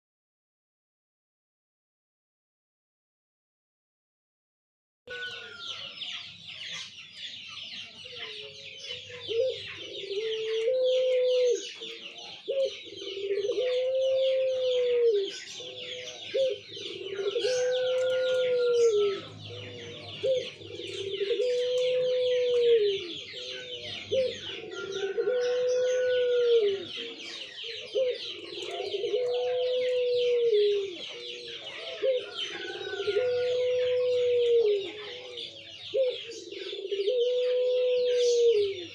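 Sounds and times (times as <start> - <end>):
dove cooing: 8.0 - 38.9.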